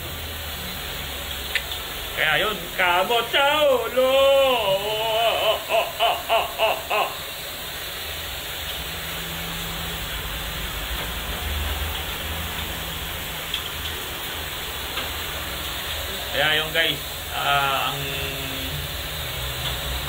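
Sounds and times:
water rushing through purifier: 0.0s - 20.0s.

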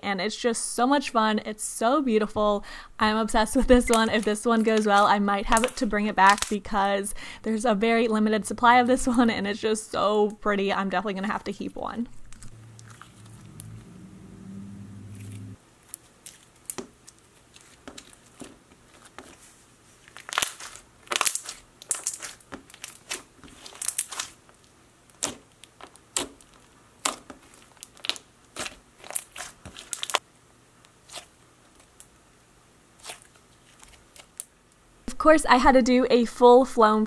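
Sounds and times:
slime crackling when squeezed: 12.2s - 13.7s, 20.1s - 30.2s.

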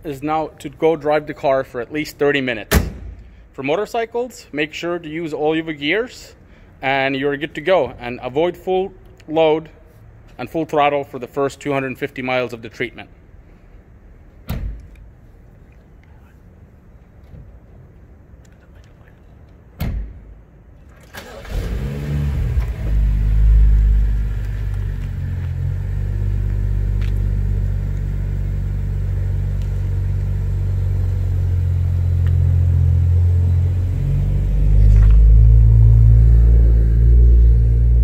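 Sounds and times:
thump: 2.7s - 3.3s, 14.4s - 14.8s, 19.8s - 20.2s
car engine starting and idling: 20.8s - 38.0s.

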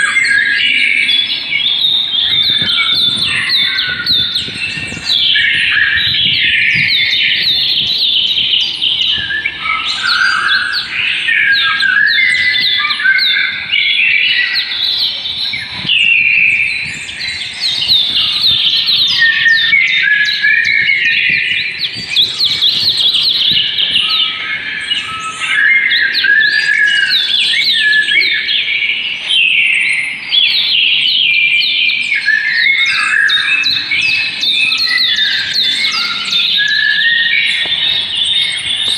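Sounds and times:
many birds chirping: 0.0s - 38.9s.

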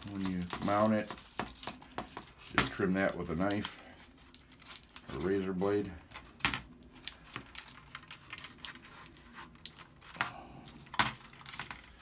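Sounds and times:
paper towel crinkling: 0.0s - 5.9s.

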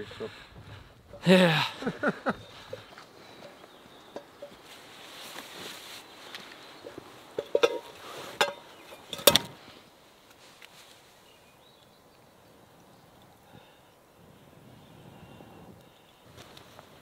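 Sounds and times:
faint outdoor background: 0.0s - 17.0s
sharp knocks and clinks: 7.4s - 9.5s.

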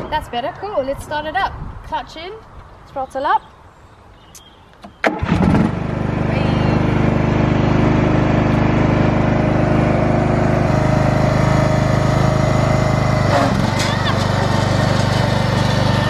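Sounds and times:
lawn tractor engine running: 5.1s - 16.0s.

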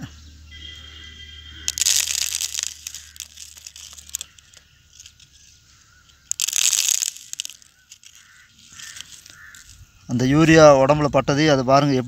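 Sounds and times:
granules ticking on dry leaf: 1.6s - 9.8s
small crackles: 1.6s - 9.9s.

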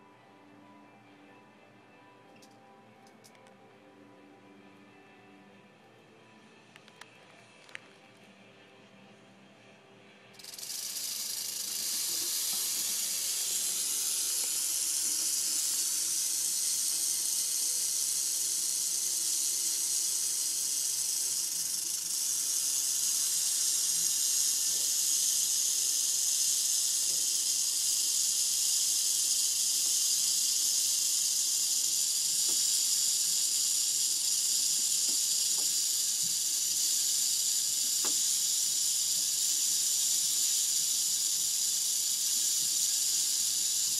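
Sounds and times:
rattlesnake rattling: 10.4s - 43.9s.

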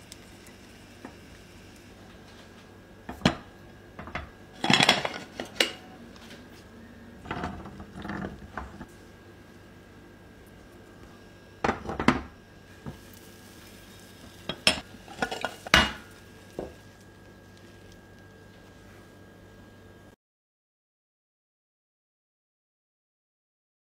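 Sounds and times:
faint steady hum: 0.0s - 20.2s
pan and plate clattering: 4.0s - 5.9s, 14.5s - 16.8s.

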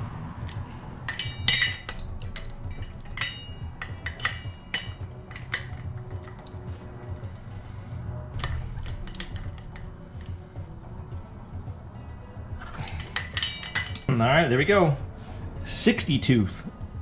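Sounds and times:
wrench clinking on metal bolts: 0.4s - 6.9s, 8.4s - 10.3s, 12.6s - 14.2s.

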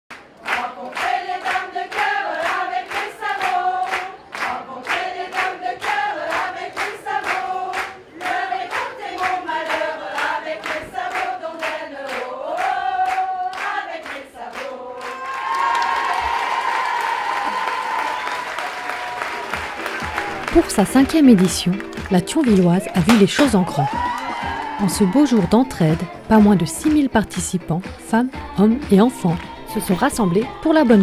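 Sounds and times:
women singing in unison: 0.4s - 16.2s, 22.6s - 31.0s.

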